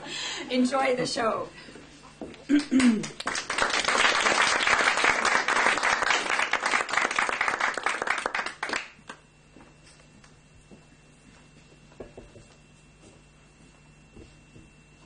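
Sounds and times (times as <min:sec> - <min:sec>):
audience applauding: 0:02.6 - 0:09.2.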